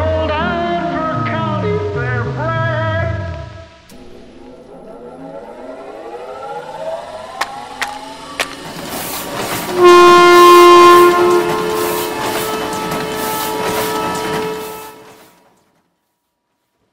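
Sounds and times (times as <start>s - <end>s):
tones sliding upward: 3.9s - 9.4s
loud horn-like chord: 9.7s - 12.5s.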